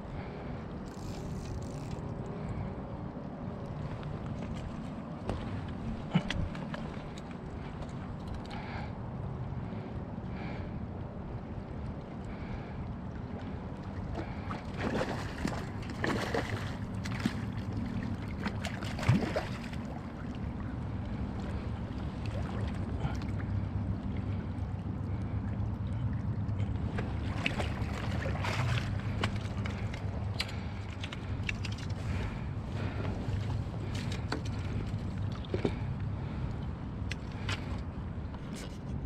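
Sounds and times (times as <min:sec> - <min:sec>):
fish thrashing and splashing in water: 0:14.2 - 0:20.2, 0:27.0 - 0:33.0.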